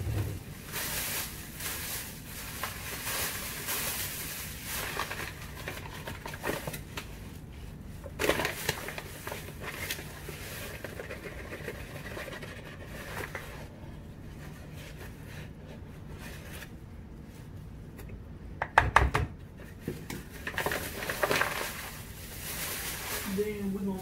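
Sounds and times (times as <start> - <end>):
paper packet rustling: 0.4 - 7.4, 8.0 - 13.7, 19.7 - 24.0.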